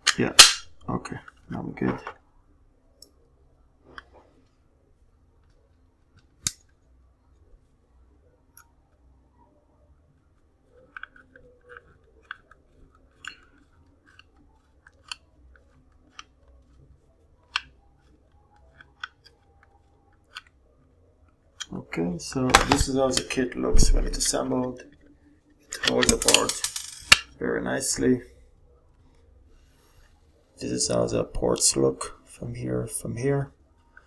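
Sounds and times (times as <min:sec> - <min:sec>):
small clicks and scraping: 0:10.2 - 0:21.8.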